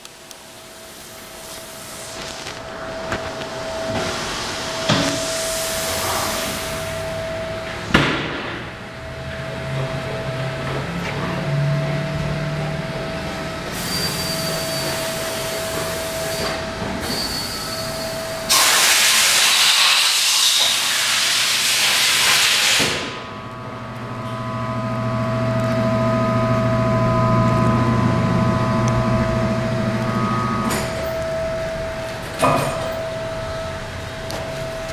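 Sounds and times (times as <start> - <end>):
loud hiss: 0.8 - 7.1, 13.8 - 23.2.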